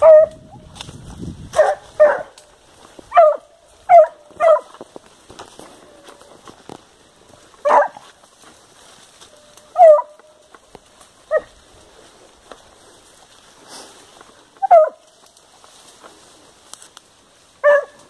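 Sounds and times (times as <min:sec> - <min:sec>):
dog barking: 0:00.0 - 0:00.4, 0:01.6 - 0:02.4, 0:03.1 - 0:04.7, 0:07.6 - 0:08.0, 0:09.8 - 0:10.2, 0:14.6 - 0:15.0, 0:17.6 - 0:18.0.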